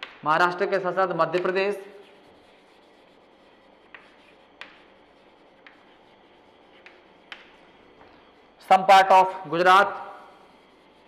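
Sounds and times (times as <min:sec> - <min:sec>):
chalk clicking on board: 0:00.0 - 0:00.2, 0:01.2 - 0:08.0, 0:09.8 - 0:11.0
chalk scraping on chalkboard: 0:00.0 - 0:11.0.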